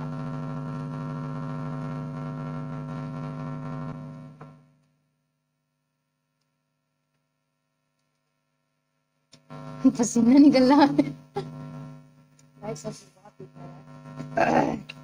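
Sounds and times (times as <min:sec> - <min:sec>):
electrical hum and buzz: 0:00.0 - 0:05.3, 0:08.7 - 0:15.0.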